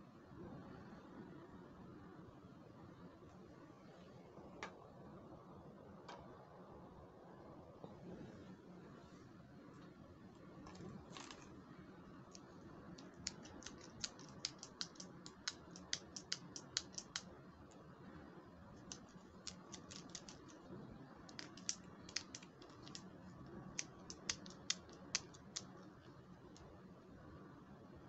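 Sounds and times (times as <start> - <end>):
plastic toy clicking: 13.0 - 17.3, 18.8 - 20.6, 21.3 - 23.2, 23.8 - 25.9.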